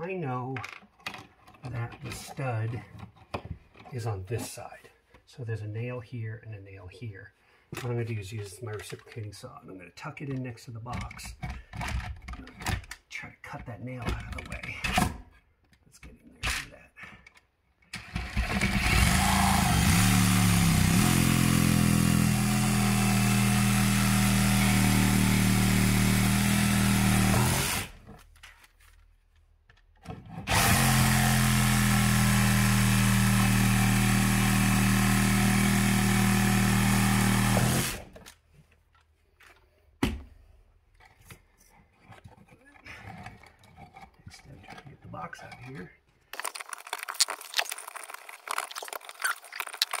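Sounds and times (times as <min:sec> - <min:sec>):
reciprocating saw cutting: 0:18.6 - 0:28.0, 0:30.5 - 0:38.2.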